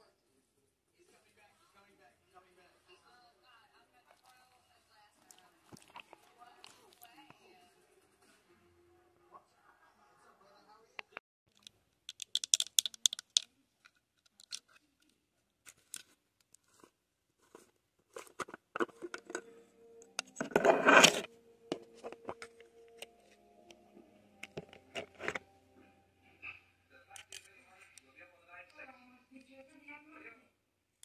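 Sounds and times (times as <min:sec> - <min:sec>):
clicks and taps of handling: 0:11.5 - 0:14.8
plastic tub lid scraping: 0:16.7 - 0:19.5, 0:20.2 - 0:22.5, 0:24.4 - 0:25.4.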